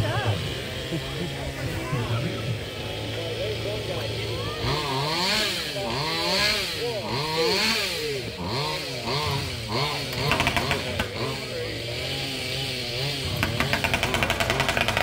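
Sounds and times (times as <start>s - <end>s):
chainsaw engine revving: 0.0s - 15.0s
sharp cracks: 10.2s - 11.2s, 13.4s - 15.0s.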